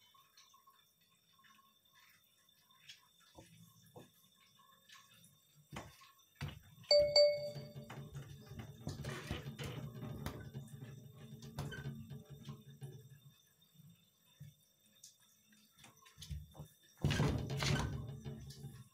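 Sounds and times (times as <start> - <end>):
electronic chime notes: 6.9 - 7.9.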